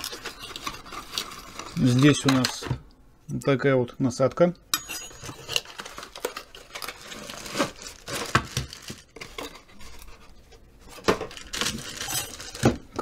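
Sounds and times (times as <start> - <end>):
cardboard and plastic bag rustling: 0.0 - 2.6, 5.4 - 13.0.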